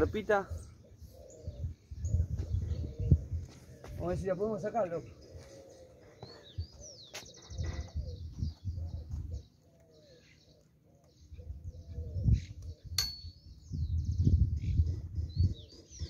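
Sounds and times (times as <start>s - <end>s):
small birds chirping: 0.0s - 16.0s
wind rumbling on microphone: 0.4s - 4.4s, 6.4s - 9.5s, 11.3s - 16.0s
dove cooing: 0.5s - 4.0s, 5.1s - 12.9s.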